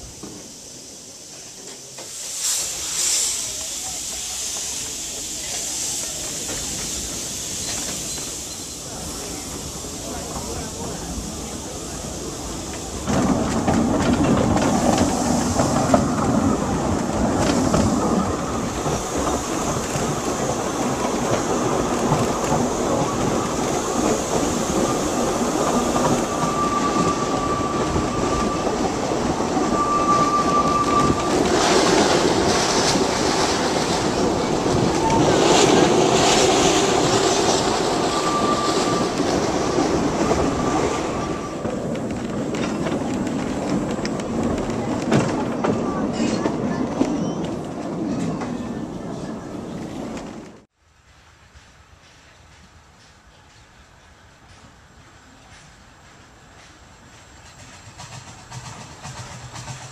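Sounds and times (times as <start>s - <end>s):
train wheels rumbling on rails: 0.0s - 59.9s
high wheel squeals: 23.0s - 32.3s, 34.8s - 41.8s.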